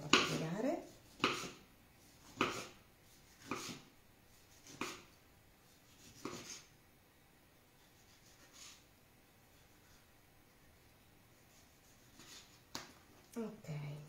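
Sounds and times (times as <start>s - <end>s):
knife slicing onto wooden board: 2.2s - 2.8s, 3.4s - 3.8s.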